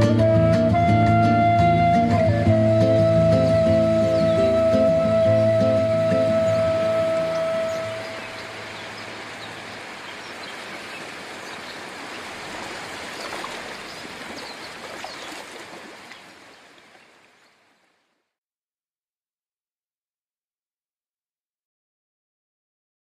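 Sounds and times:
rushing water: 0.0 - 18.2.

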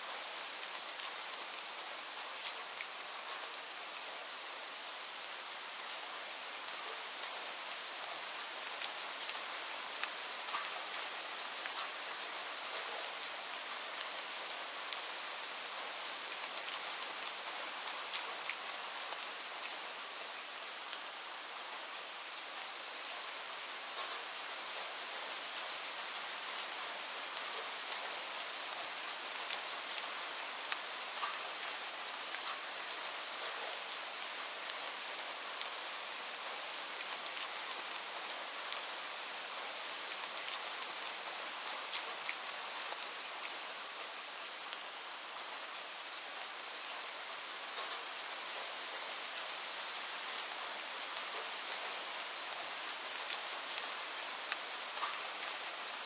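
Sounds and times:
steady rain hiss: 0.0 - 56.0
raindrops ticking close by: 4.8 - 21.1, 23.8 - 55.9.

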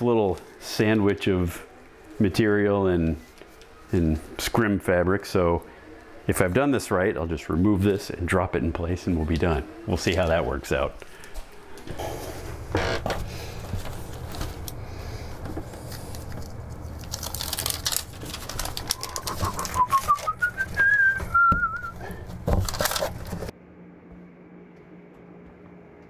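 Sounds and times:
person whistling: 19.0 - 22.2.

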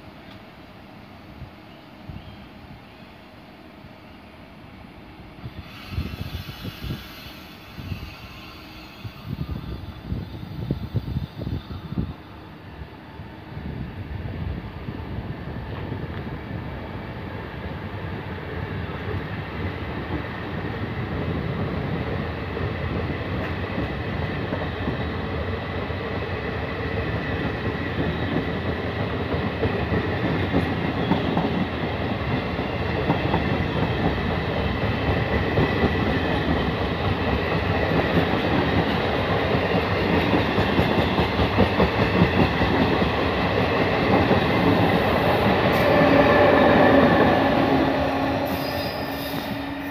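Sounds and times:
train coaches rolling on rails: 18.6 - 49.9.

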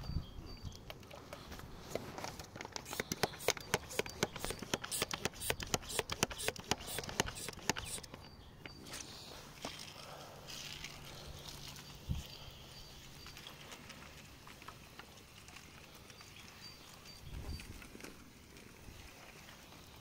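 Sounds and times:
spray bottle pumping clicks: 2.3 - 8.3.

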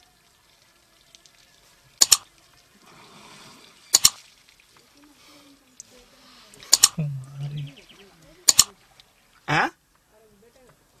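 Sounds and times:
mouse click sound effects: 2.0 - 2.2, 3.9 - 4.2, 6.7 - 7.0, 8.5 - 8.7
elephant blowing water from trunk: 2.7 - 6.8.

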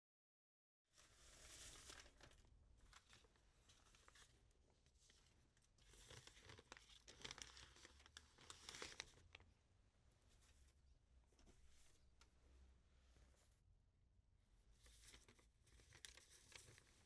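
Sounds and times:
paper rustling and scratching: 1.0 - 9.5, 14.8 - 17.0.

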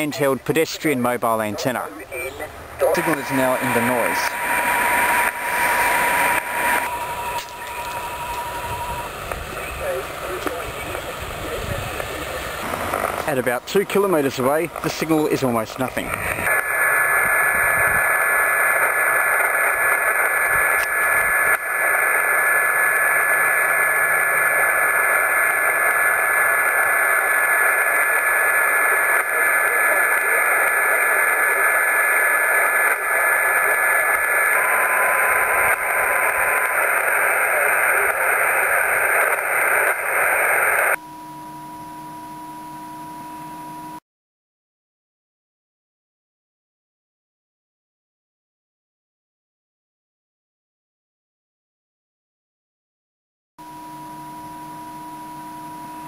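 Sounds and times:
radio speaker hiss: 0.0 - 41.0
quiet steady tone: 1.6 - 12.5
thin steady whistle: 4.0 - 9.1.

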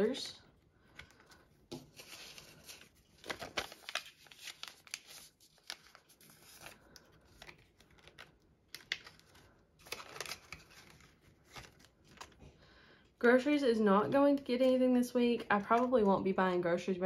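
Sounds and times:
banknotes and plastic envelope crinkling: 0.0 - 12.5, 14.1 - 16.4
binder pages turning: 0.8 - 12.4.

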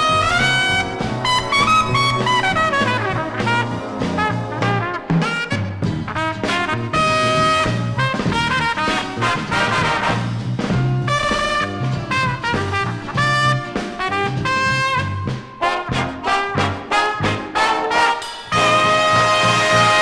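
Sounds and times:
big band brass music: 0.0 - 20.0.

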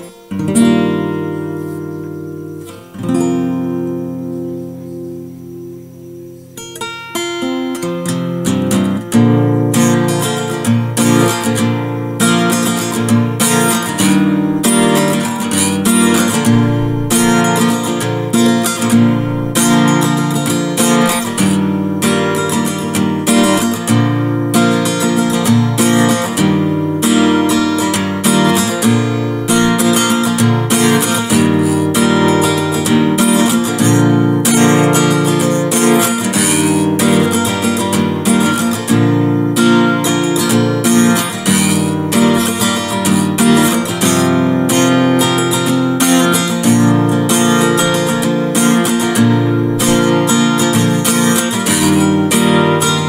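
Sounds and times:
acoustic guitar music: 0.0 - 53.0.

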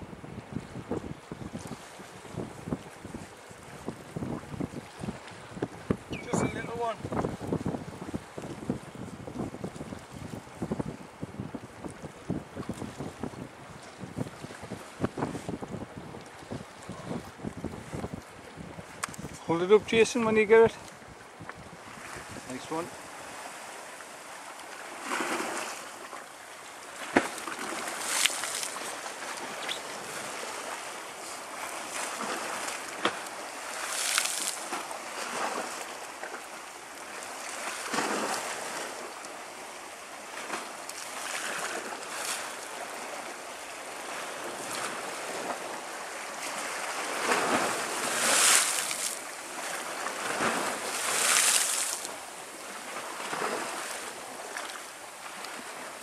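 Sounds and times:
wind on microphone: 0.0 - 23.7
sea waves washing ashore: 0.0 - 56.0.

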